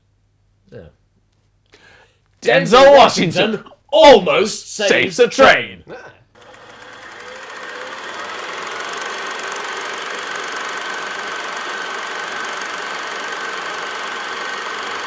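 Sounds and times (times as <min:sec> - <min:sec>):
film projector clattering: 0:06.4 - 0:15.0.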